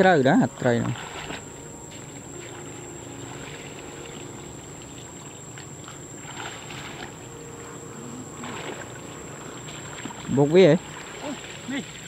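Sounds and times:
shallow water sloshing: 0.0s - 12.0s.

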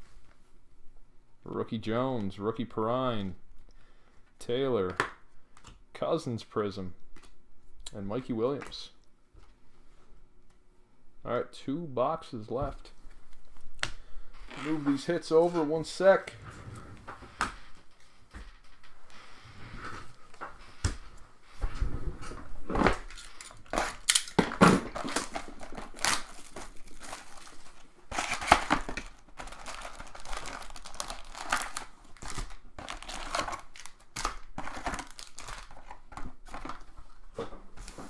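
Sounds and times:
plastic packaging crinkling and tearing: 22.8s - 36.9s.

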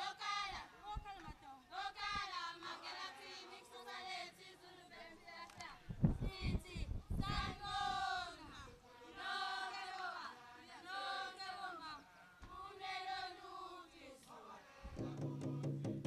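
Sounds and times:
girls and women singing: 0.0s - 15.6s.

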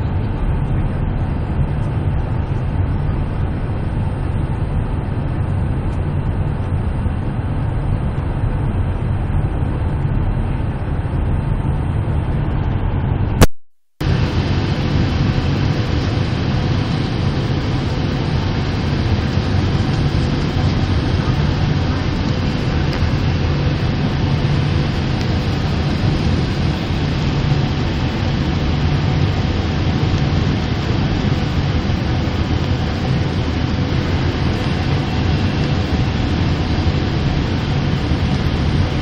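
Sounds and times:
jet airliner cabin noise: 0.0s - 39.0s.

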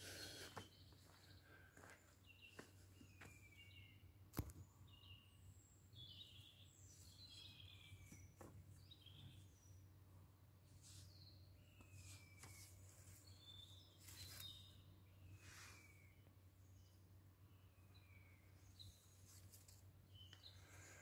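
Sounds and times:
birds chirping and whistling: 6.0s - 9.8s, 11.0s - 16.2s.

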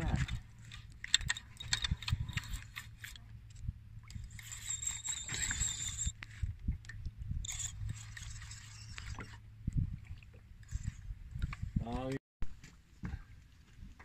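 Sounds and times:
fishing reel winding: 0.1s - 3.2s, 4.2s - 6.2s, 7.4s - 9.4s.

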